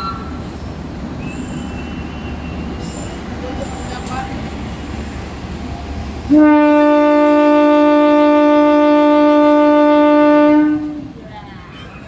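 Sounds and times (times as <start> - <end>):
train horn blast: 6.3 - 11.1.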